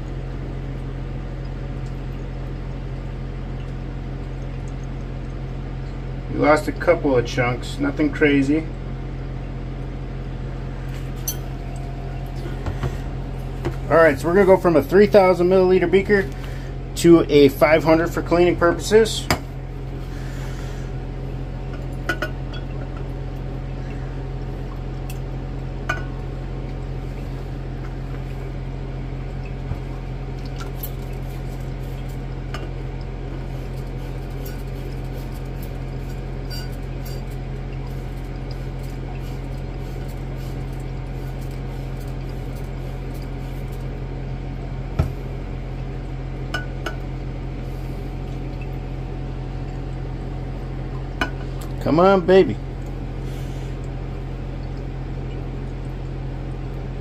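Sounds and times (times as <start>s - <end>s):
steady low hum: 0.0s - 57.0s
glass beakers clinking: 36.4s - 37.3s.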